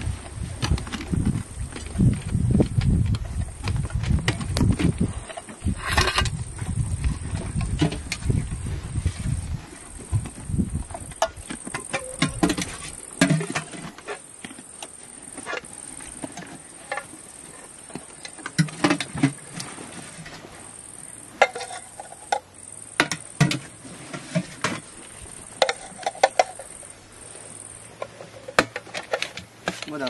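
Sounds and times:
high insect trill: 0:00.1 - 0:30.0
metal tins and ladle clinking: 0:21.4 - 0:22.4, 0:25.6 - 0:26.8.

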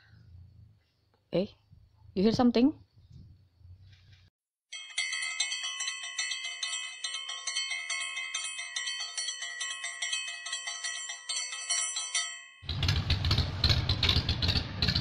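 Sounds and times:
bell ringing rapidly: 0:04.7 - 0:12.7.

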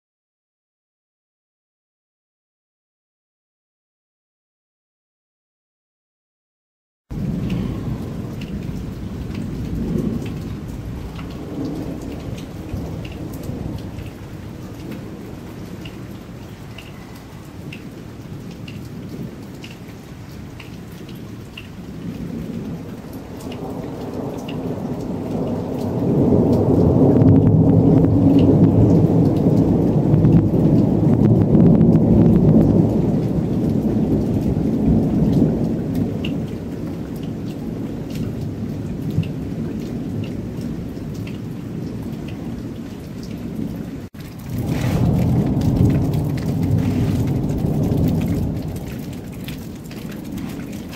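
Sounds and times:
thunder rolling: 0:07.1 - 0:19.4, 0:21.8 - 0:36.9, 0:44.2 - 0:50.9
steady rain: 0:07.1 - 0:50.9.

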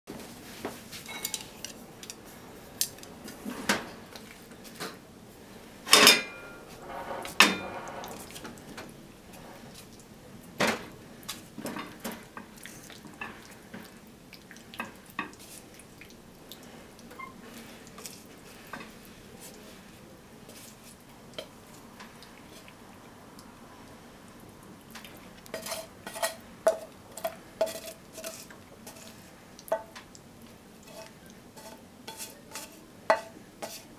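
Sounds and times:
clinking against ceramic bowl: 0:01.1 - 0:01.5
spatula scraping frying pan: 0:05.9 - 0:08.6, 0:25.5 - 0:29.9, 0:30.8 - 0:33.9.

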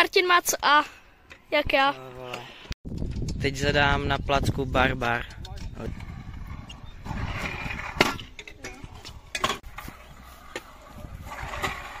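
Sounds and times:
skateboard rolling: 0:05.7 - 0:12.0.

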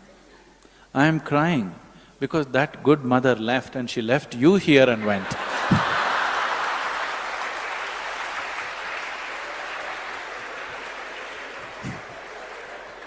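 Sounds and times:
audience laughing: 0:04.9 - 0:07.3
audience applauding: 0:05.3 - 0:13.0.

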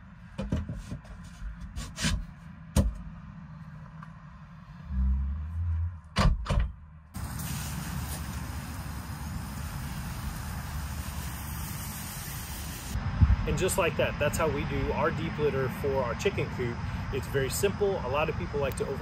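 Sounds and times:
outdoor background noise: 0:00.0 - 0:19.0
low rumble: 0:03.2 - 0:07.0, 0:13.0 - 0:14.9.

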